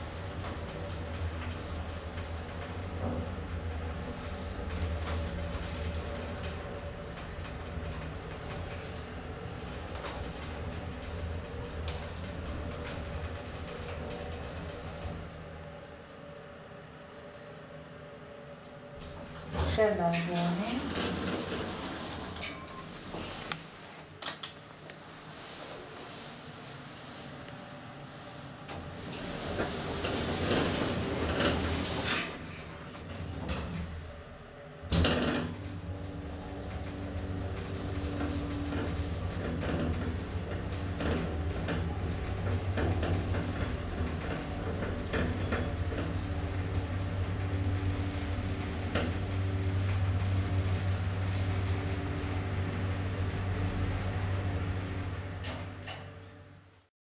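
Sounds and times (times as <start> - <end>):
lift machinery humming: 0.0 - 23.6, 26.5 - 56.6
lift doors whirring shut: 19.0 - 23.5, 28.6 - 56.4.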